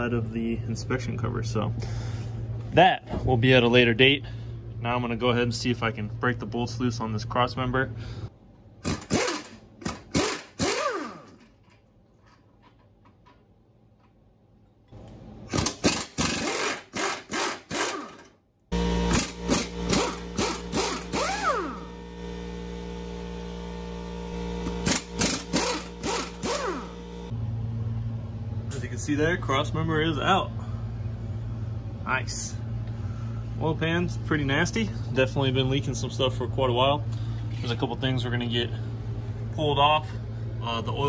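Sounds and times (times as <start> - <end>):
impact wrench bursts: 8.8 - 11.5, 15.5 - 27.3
steady hum: 13.7 - 41.0.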